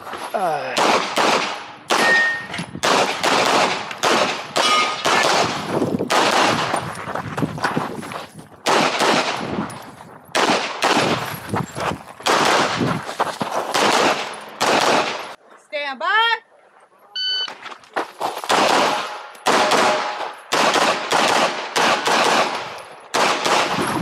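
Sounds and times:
pistol shots: 0.7s - 6.8s, 8.6s - 9.6s, 10.3s - 11.3s, 12.2s - 12.8s, 13.7s - 15.4s, 18.5s - 24.0s.

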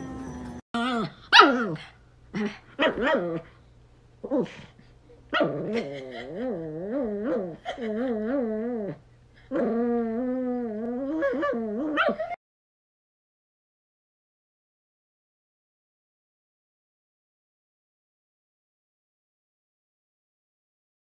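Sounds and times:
small dog yipping: 0.2s - 1.8s, 2.8s - 3.4s, 11.2s - 12.4s
small dog howling: 5.4s - 12.4s.

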